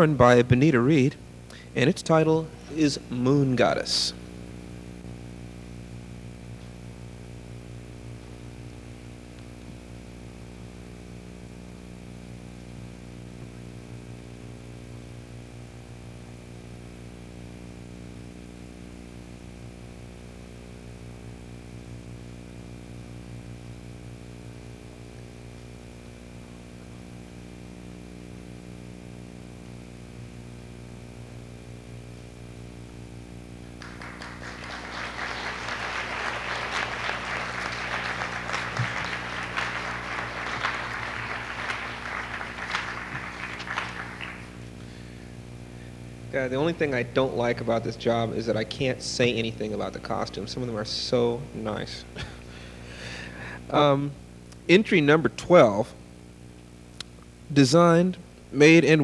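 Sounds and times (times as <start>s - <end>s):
electrical hum with buzz: 0.0s - 59.0s.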